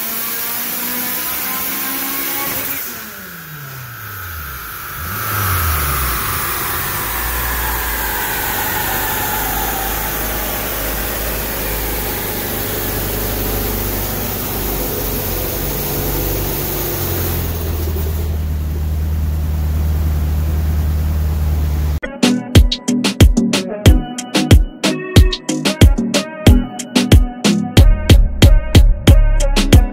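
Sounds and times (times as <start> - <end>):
car engine idling: 1.9 - 22.0
whine falling in pitch: 2.0 - 18.7
music: 22.0 - 29.9.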